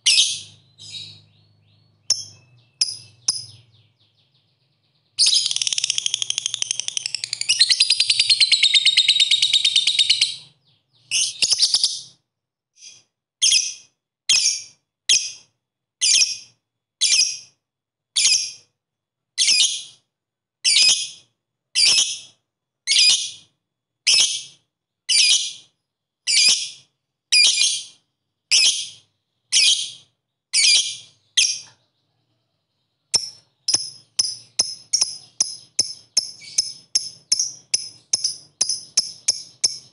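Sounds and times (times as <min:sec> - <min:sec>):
bird chattering trill: 0:00.0 - 0:04.3, 0:05.2 - 0:12.1, 0:33.2 - 0:39.9
bird sharp chirps: 0:00.0 - 0:12.2, 0:24.1 - 0:39.9.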